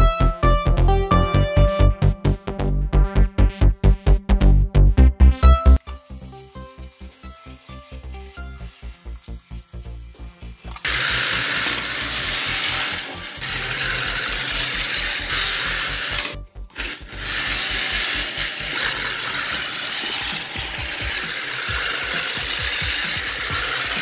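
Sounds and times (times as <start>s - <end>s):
toy train motor whirring: 5.8s - 24.0s
plastic wheels rattling: 10.4s - 24.0s.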